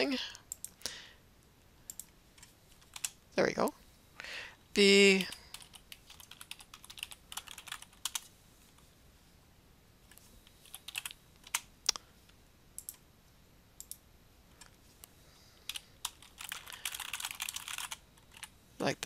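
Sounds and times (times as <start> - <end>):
computer keyboard typing: 1.9 - 3.2, 5.2 - 8.3, 10.1 - 11.7, 12.8 - 13.0, 15.6 - 18.5.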